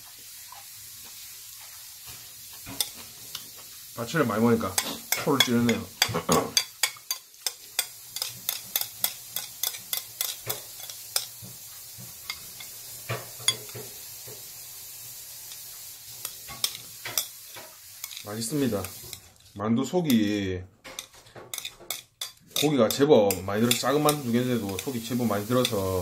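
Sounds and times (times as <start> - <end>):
metal chopsticks mixing noodles: 4.3 - 11.3, 16.2 - 20.3, 21.0 - 26.0.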